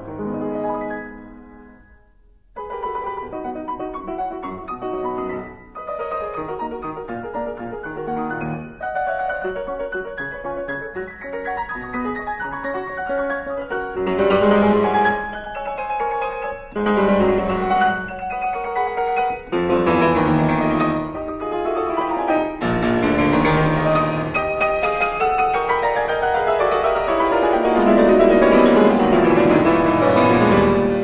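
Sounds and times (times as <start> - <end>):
flowing piano music: 0.0 - 31.0.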